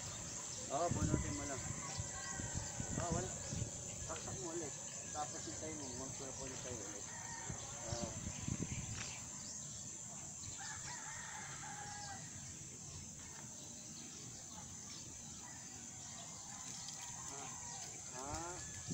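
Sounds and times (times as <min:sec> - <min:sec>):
faint rooster crowing: 0:00.9 - 0:03.7, 0:10.5 - 0:12.4.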